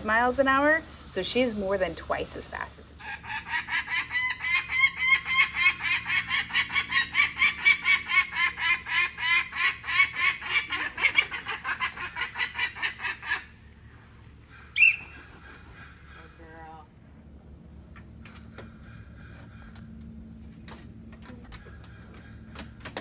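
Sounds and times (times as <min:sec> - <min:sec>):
falcon cacking calls: 0:03.0 - 0:13.6, 0:14.5 - 0:16.8.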